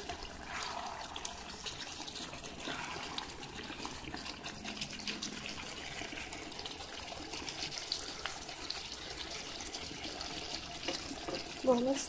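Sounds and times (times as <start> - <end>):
spoon stirring: 0.0 - 11.6
curry bubbling and popping: 0.0 - 12.0.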